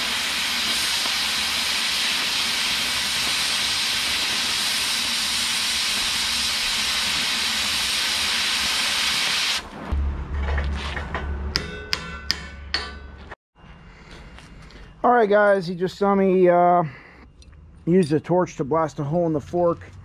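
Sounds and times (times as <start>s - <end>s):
cutting torch hissing: 0.0s - 9.8s.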